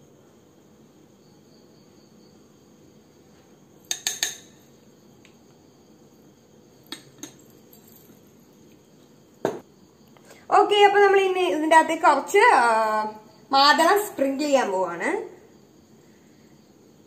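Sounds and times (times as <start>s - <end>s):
spoon clinking against glass: 3.9s - 4.6s, 6.9s - 8.2s.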